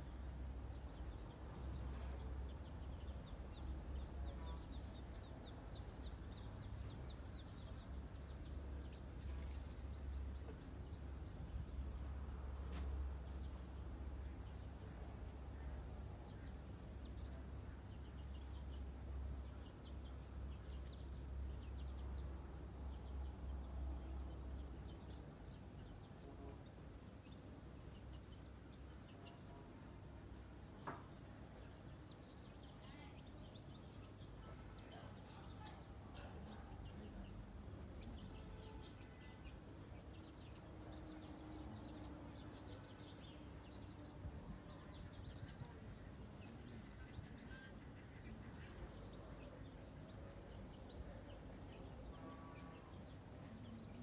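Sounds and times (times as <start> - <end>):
faint chirps: 0.0 - 54.0.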